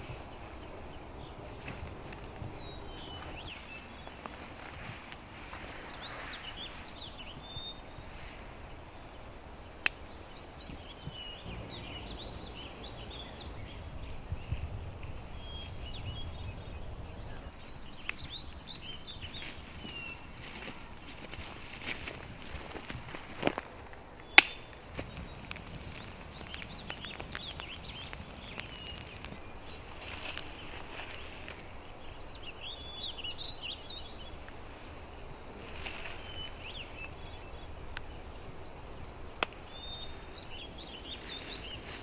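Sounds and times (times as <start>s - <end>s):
songbirds chirping: 0.0s - 42.0s
sharp clicks or snaps: 24.4s - 29.4s.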